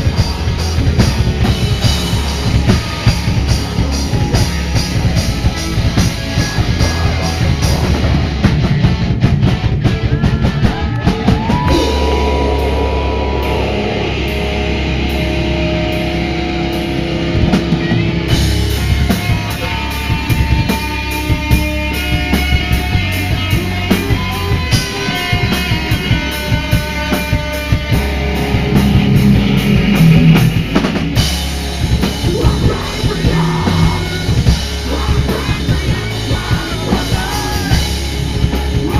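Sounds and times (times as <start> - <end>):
metal band playing live: 0.0 - 38.9
person singing: 10.4 - 15.7, 32.2 - 37.9.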